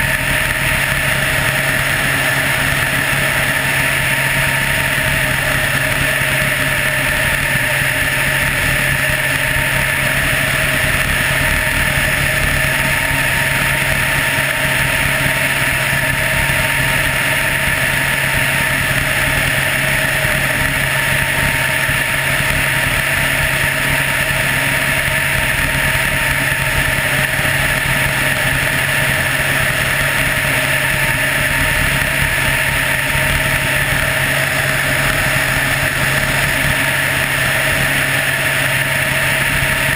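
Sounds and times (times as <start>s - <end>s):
helicopter engine and rotors: 0.0s - 39.9s.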